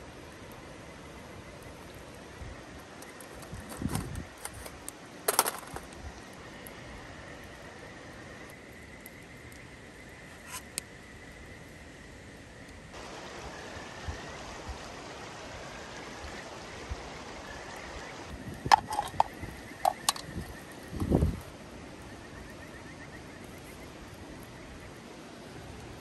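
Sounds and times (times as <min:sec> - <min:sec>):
outdoor background hiss: 0:00.0 - 0:26.0
cooking gear clinking: 0:18.7 - 0:20.3.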